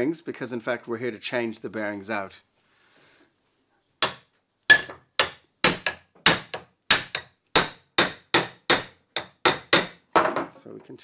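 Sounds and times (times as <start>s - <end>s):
hammer striking metal shaft: 4.0s - 10.0s.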